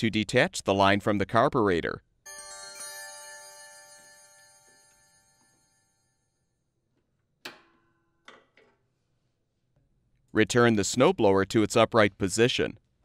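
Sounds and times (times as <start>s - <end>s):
bright alert chime ringing: 2.3s - 6.4s.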